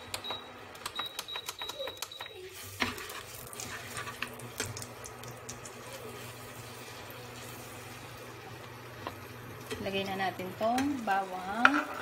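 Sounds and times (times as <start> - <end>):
cooktop low hum: 0.0 - 12.0
spoon scraping frying pan: 10.8 - 12.0.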